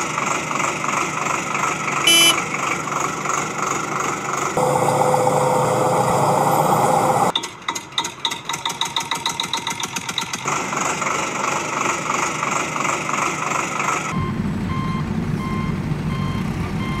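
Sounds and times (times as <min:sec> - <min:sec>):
vehicle engine clatter and rumble: 0:00.0 - 0:17.0
reversing alarm beeping: 0:02.1 - 0:02.4, 0:04.6 - 0:07.3, 0:14.1 - 0:17.0.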